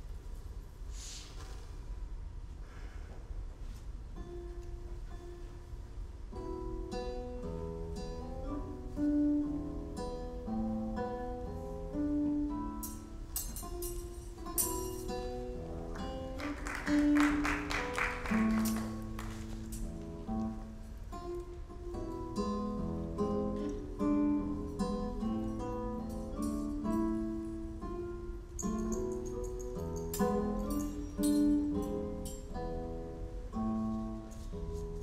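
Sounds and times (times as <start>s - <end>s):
plucked acoustic guitar melody: 4.2s - 35.0s
fast guitar strumming: 15.0s - 20.2s.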